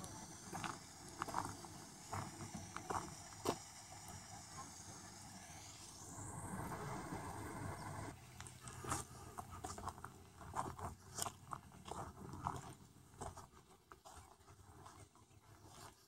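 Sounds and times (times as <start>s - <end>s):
footsteps crunching on gravel: 8.4s - 16.0s.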